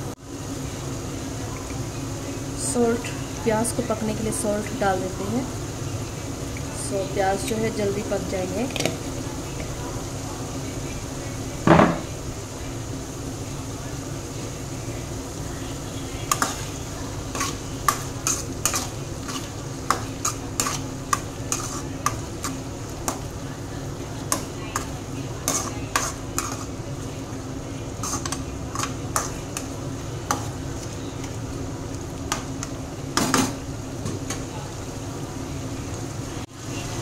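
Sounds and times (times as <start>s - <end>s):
onions sizzling in oil: 0.0s - 37.0s
metal spatula scraping a pan: 21.5s - 21.9s, 25.4s - 26.8s.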